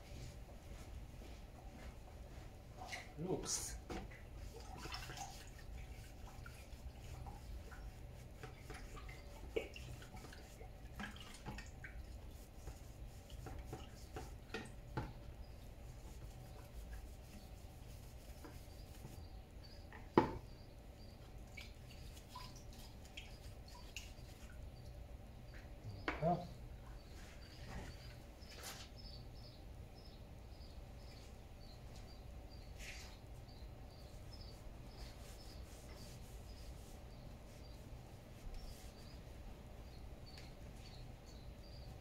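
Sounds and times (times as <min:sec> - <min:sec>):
liquid dripping and splashing: 0:04.1 - 0:07.9, 0:08.5 - 0:12.4, 0:21.4 - 0:24.6.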